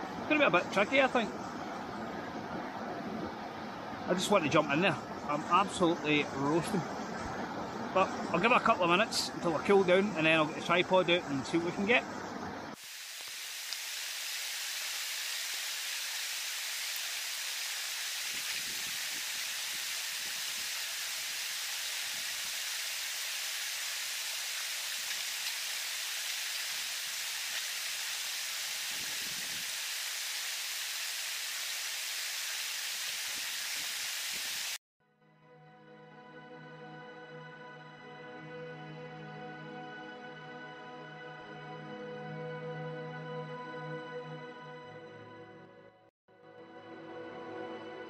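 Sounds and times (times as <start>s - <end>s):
waterfall splashing into pool: 12.8s - 34.8s.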